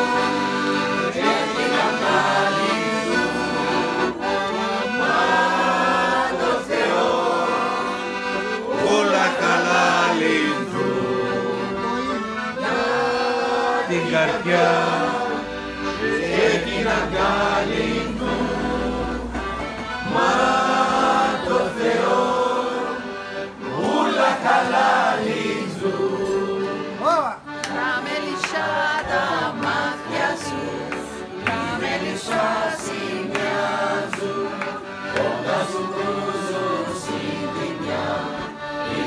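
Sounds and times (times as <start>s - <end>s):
group singing folk song: 0.0s - 39.0s
held instrumental chords: 0.0s - 39.0s.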